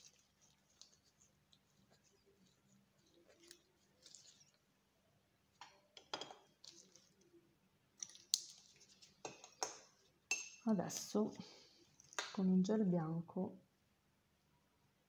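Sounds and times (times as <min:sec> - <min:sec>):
small objects clicking and tapping: 0:08.0 - 0:11.2, 0:12.0 - 0:12.4.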